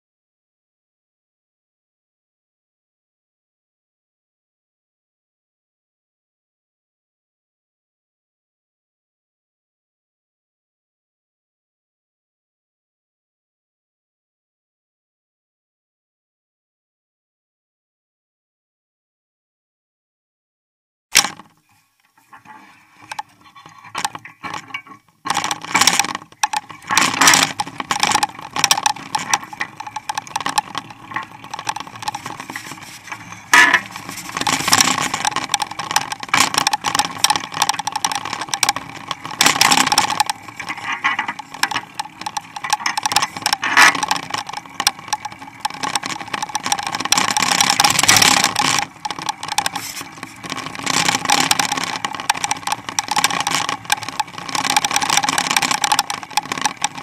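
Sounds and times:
bike rolling on pavement: 21.2 - 57.0.

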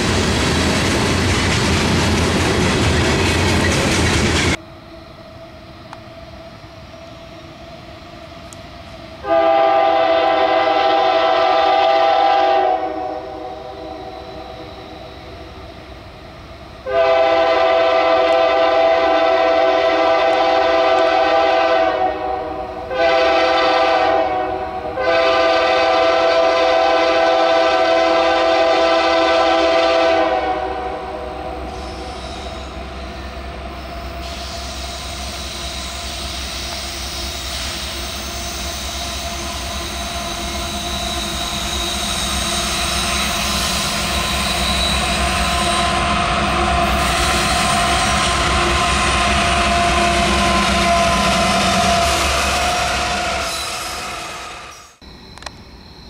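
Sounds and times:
train engine and rail noise: 0.0 - 56.0
locomotive air horn blasts: 9.2 - 14.5, 16.8 - 32.7, 44.2 - 54.8.

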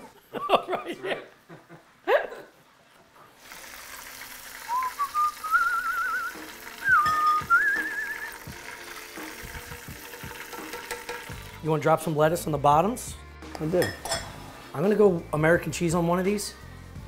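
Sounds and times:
man whistling a tune: 4.7 - 8.4.

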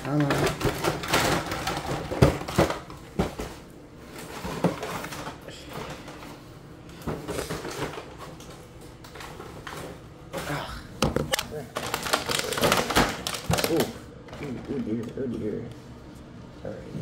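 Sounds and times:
packaging crinkling and rustling: 0.0 - 3.6, 11.2 - 14.9.

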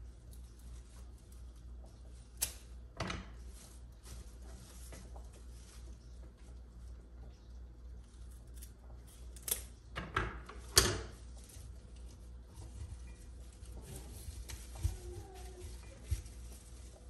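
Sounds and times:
leafy stems rustling: 0.0 - 9.8, 11.1 - 17.0
scissors snipping stems: 2.4 - 2.7, 8.2 - 9.7.

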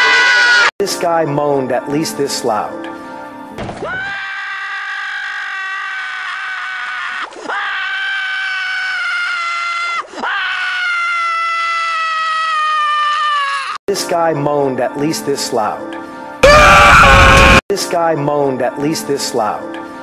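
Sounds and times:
cartoon character screaming: 0.0 - 0.7, 3.9 - 13.8, 16.4 - 17.6.

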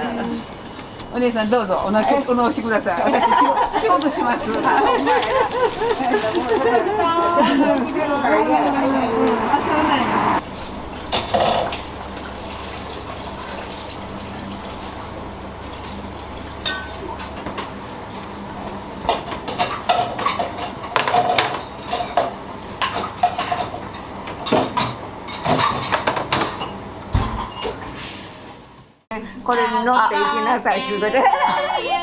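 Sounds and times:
dishes and cutlery clattering: 19.5 - 23.7, 24.4 - 27.8.

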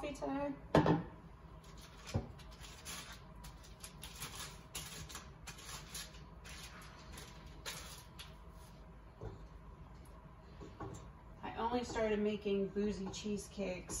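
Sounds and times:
foil wrapper crinkling: 1.6 - 8.6.

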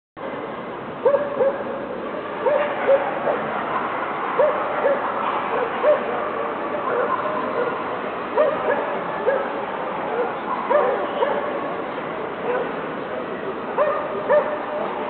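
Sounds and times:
crowd hubbub: 0.2 - 15.0
dog barking: 1.0 - 1.7, 2.4 - 3.5, 4.4 - 7.8, 8.4 - 11.6, 12.5 - 12.8, 13.8 - 14.7.

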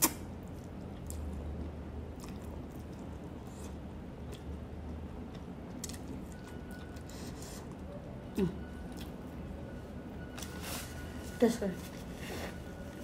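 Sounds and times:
person chewing noodles: 0.0 - 7.8, 8.8 - 9.2.

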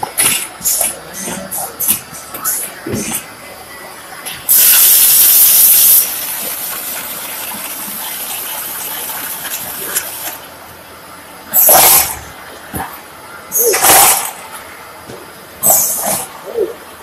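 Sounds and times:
compressed air hissing: 4.5 - 6.6.

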